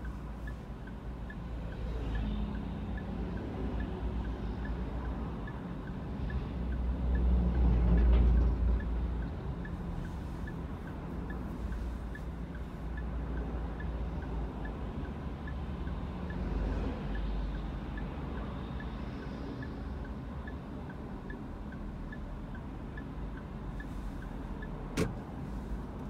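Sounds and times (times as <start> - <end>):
light regular ticking: 0.0 - 26.0
vehicles passing rumble: 0.0 - 26.0.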